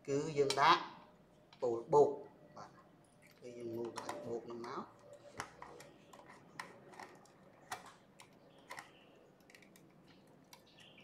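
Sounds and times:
clicks of small plastic parts: 0:03.2 - 0:11.0.

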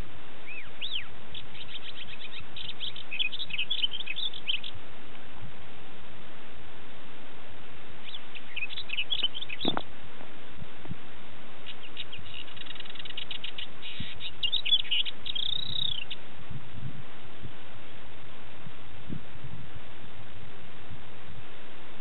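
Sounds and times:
lark singing chirps and trills: 0:00.0 - 0:04.8, 0:08.0 - 0:09.9, 0:11.6 - 0:16.3
steady hiss: 0:00.0 - 0:22.0.

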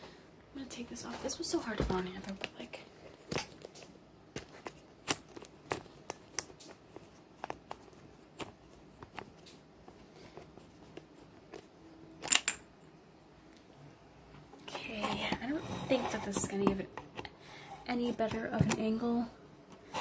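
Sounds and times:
clicks of small objects handled: 0:12.2 - 0:12.6.

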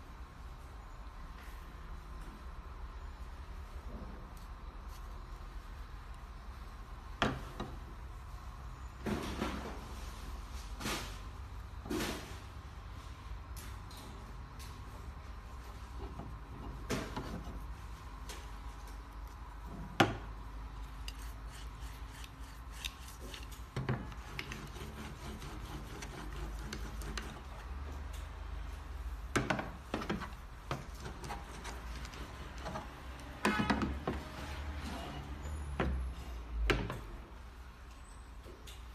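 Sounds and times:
wood and cord rubbing: 0:21.0 - 0:27.8.

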